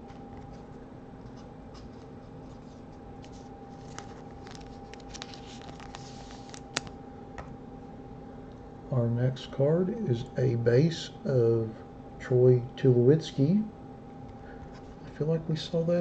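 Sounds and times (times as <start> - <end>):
cards rustling and sliding: 0.0 - 7.0
faint hum: 0.0 - 16.0.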